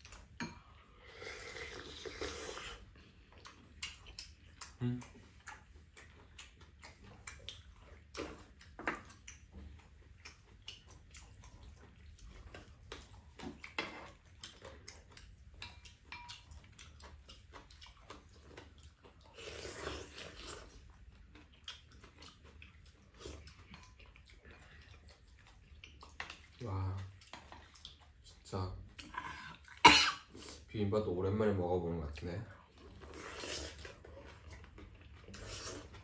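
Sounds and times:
chewing: 0.0 - 30.7, 31.4 - 36.0.

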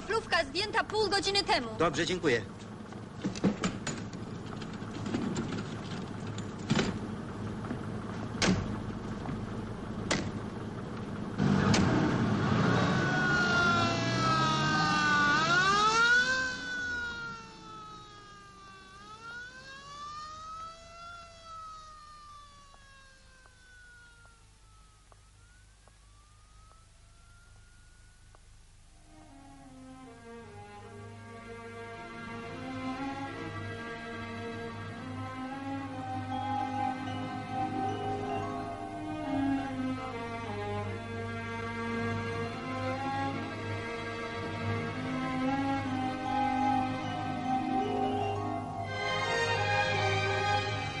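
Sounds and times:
ambulance engine: 0.0 - 51.0
vehicle doors slamming: 8.4 - 9.4
wailing siren: 11.4 - 28.2, 29.0 - 31.0, 32.1 - 51.0.

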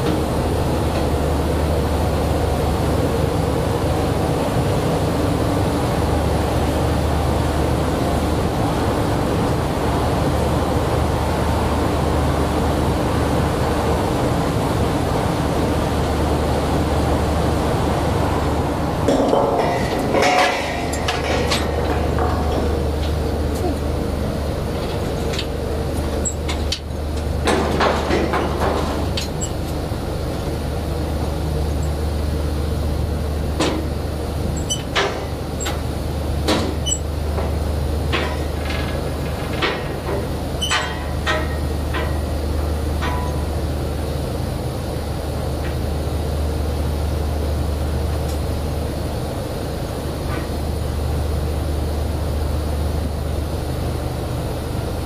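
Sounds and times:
drilling rig engine drone: 0.0 - 55.0
metal clanks and knocks: 19.1 - 29.6.

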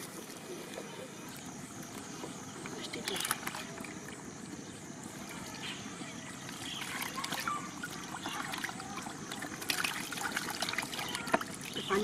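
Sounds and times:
water and fish splashing into mud: 3.0 - 4.3, 6.5 - 12.0.

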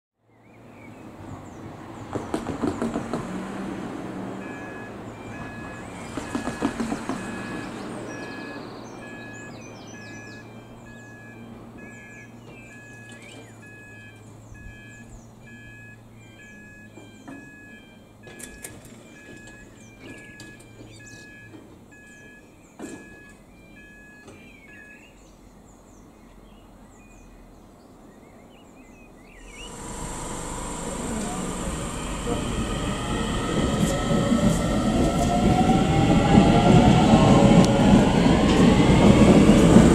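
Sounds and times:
sharp knock: 2.1 - 3.4
loud clattering knocks: 2.1 - 3.5, 6.1 - 7.6
level crossing alarm beeping: 4.4 - 25.1, 29.4 - 39.9
birds chirping: 4.4 - 37.0
faint bird chirps: 7.3 - 17.4, 19.7 - 22.8
steady low hum: 29.4 - 35.0.

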